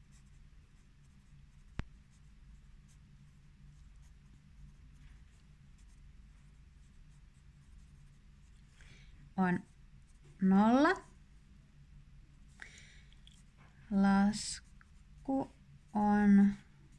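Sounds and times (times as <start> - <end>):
pencil scratching on paper: 0.1 - 8.6.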